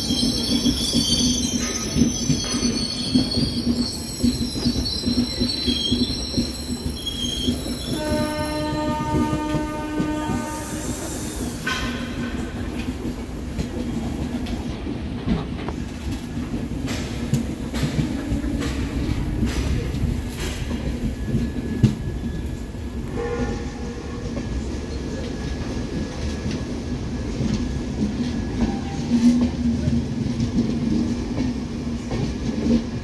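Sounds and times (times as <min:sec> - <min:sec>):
high wheel squeal: 0:00.0 - 0:08.9
train wheels on rails clicking: 0:00.0 - 0:33.0
train horn: 0:07.9 - 0:11.4, 0:23.0 - 0:24.3.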